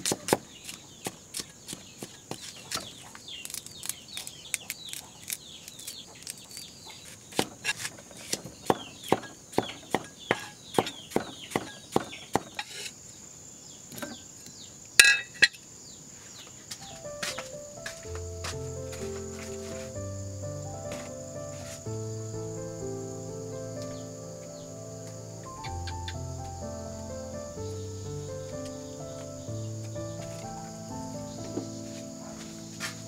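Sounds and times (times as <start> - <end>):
small chirping calls: 0.3 - 33.0
knife chopping on wooden block: 8.3 - 12.8
high insect-like hum: 12.6 - 33.0
sharp clink: 15.0 - 15.6.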